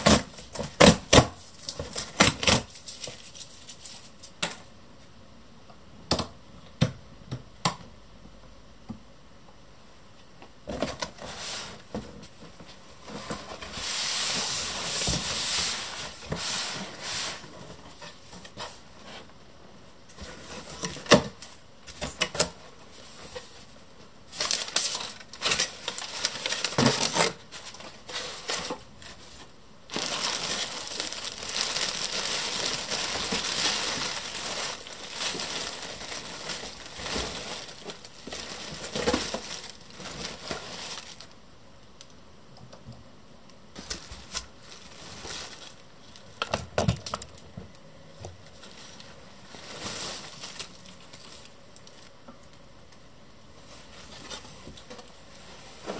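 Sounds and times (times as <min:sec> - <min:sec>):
continuous rustle: 0:01.4 - 0:04.4, 0:10.8 - 0:41.3, 0:43.8 - 0:46.4, 0:48.3 - 0:52.6, 0:53.6 - 0:55.9
plastic packaging crinkling: 0:24.3 - 0:41.4, 0:43.8 - 0:47.4, 0:48.4 - 0:52.1.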